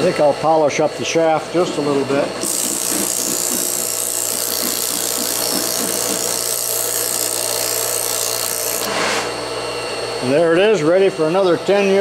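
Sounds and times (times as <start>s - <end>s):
electric motor humming: 2.2s - 10.2s
abrasive cloth rasping on shaft: 2.4s - 9.3s.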